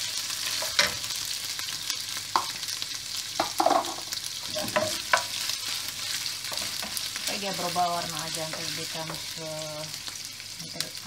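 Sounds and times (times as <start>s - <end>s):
food sizzling in a frying pan: 0.0s - 11.0s
wooden spoon scraping a pan: 3.4s - 9.4s.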